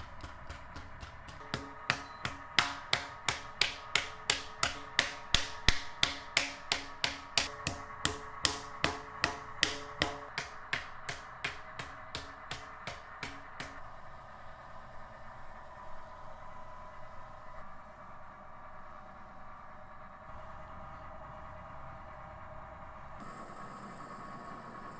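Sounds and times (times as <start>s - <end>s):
rhythmic knocking with ringing: 0.0s - 13.9s.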